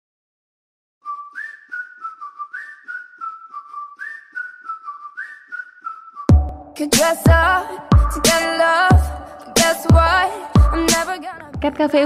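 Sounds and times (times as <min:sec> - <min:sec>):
whistled tune: 0:01.0 - 0:06.7
light steady beat: 0:06.3 - 0:12.0.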